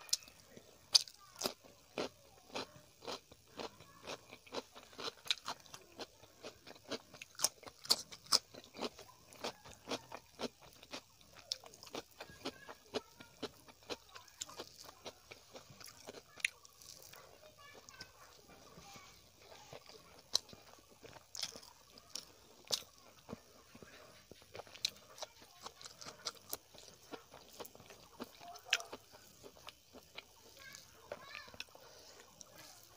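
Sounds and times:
cucumber crunching being chewed: 0.1s - 18.8s, 19.4s - 32.9s.

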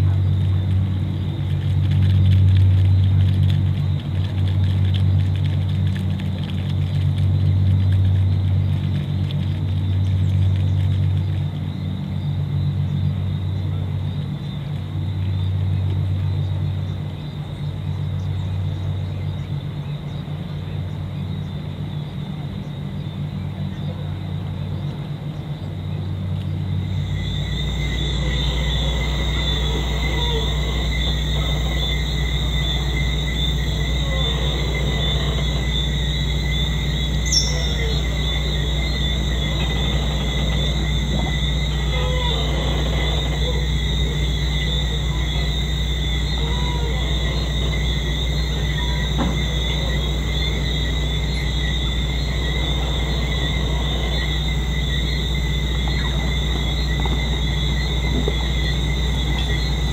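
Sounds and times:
insects trilling: 0.0s - 59.9s
steady low hum: 0.0s - 59.9s
high-pitched chorus of night creatures: 27.0s - 59.9s.

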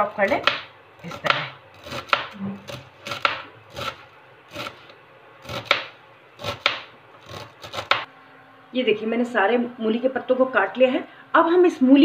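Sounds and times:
knife chopping on cutting board: 0.2s - 4.8s, 5.4s - 8.1s.

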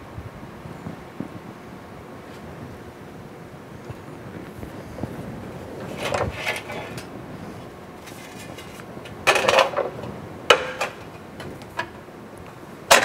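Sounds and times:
sheet metal rattling and clanking: 5.8s - 7.1s, 8.0s - 11.2s.

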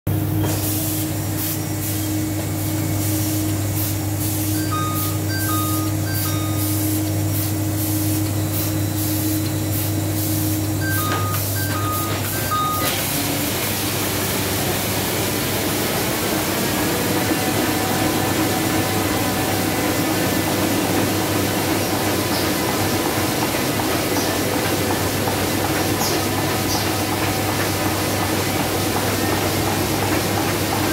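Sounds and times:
printing press running: 0.1s - 30.9s
short two-note beeps: 4.6s - 6.9s, 10.8s - 13.0s.

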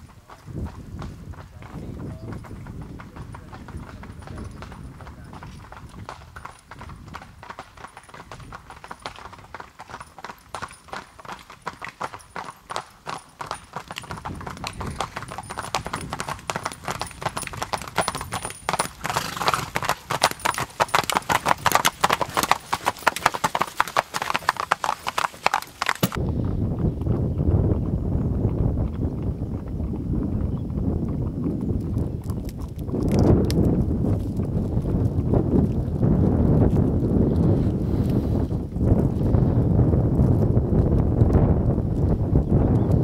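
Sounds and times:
hooves clip-clopping on asphalt: 0.0s - 43.0s.

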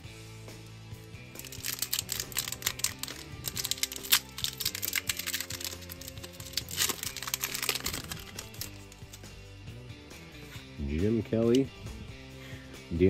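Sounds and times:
background music: 0.0s - 13.0s
foil wrapper tearing and crinkling: 1.4s - 9.2s.

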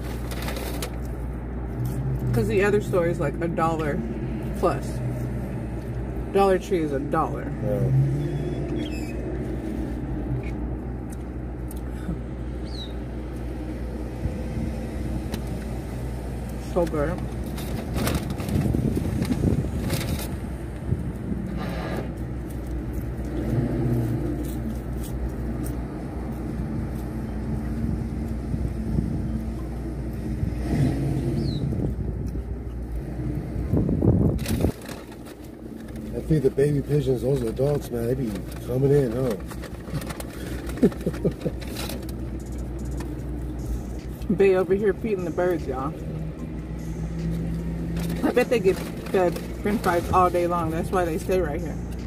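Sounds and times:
car idling rumble: 0.0s - 30.5s, 31.2s - 52.0s
car engine idling: 31.4s - 52.0s.

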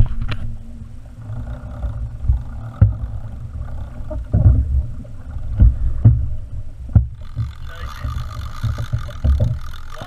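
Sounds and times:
wind buffeting microphone: 1.2s - 10.0s
sharp thumps: 1.8s - 10.0s
water slapping against kayak hull: 4.1s - 10.0s.

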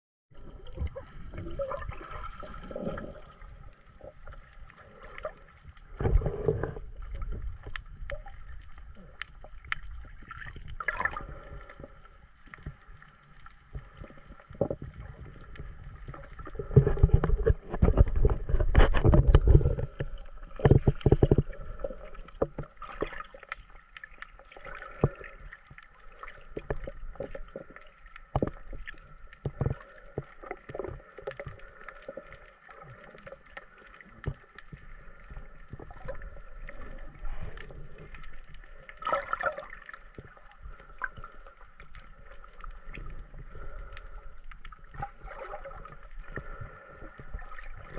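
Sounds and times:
muffled underwater gurgling: 0.3s - 12.1s, 13.8s - 23.2s
clicks underwater: 13.8s - 25.5s
rushing splashing water: 39.0s - 40.0s.

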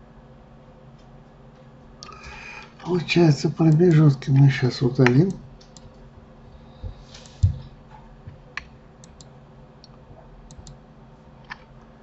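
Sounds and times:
mouse and keyboard clicks: 10.5s - 10.8s.

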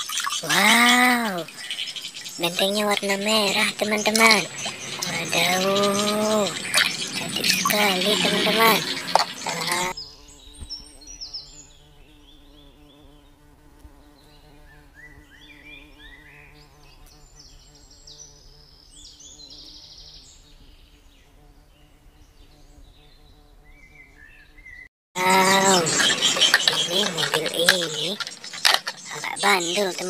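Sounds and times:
bird chirps and trills: 0.0s - 13.5s, 22.5s - 30.0s
insects buzzing: 0.0s - 30.0s.

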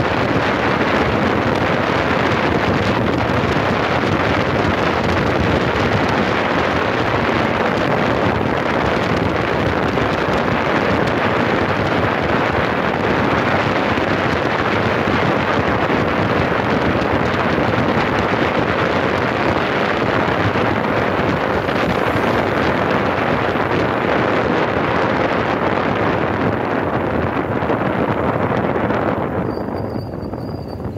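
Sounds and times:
road hum of vehicle: 0.0s - 30.9s
wind rushing over microphone: 0.0s - 30.9s.

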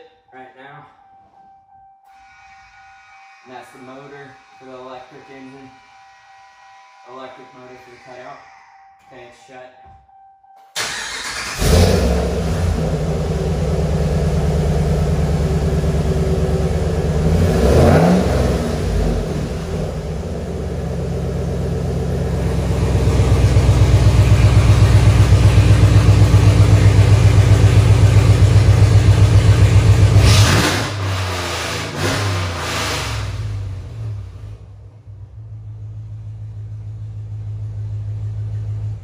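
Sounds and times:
engine idling and revving: 10.8s - 39.0s.

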